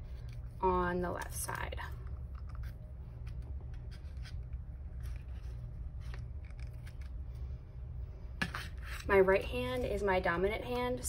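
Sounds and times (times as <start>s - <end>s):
low hum: 0.0s - 11.0s
string rustling and rubbing: 2.0s - 7.6s.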